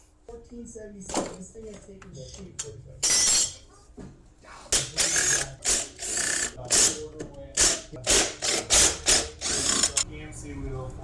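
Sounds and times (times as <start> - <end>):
ratchet wrench clicking: 4.8 - 10.0.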